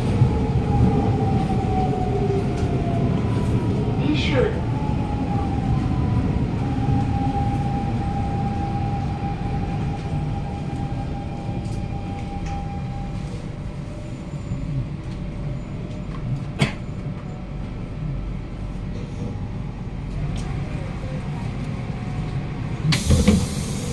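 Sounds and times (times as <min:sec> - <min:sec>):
train traction motor whine: 0:05.1 - 0:17.9.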